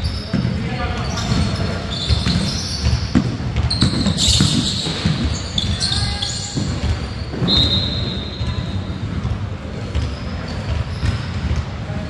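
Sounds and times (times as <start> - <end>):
shoe squeaks: 0.0 - 9.1, 9.9 - 11.4
players' voices: 0.0 - 12.0
basketball bouncing: 0.3 - 5.9, 9.1 - 11.8.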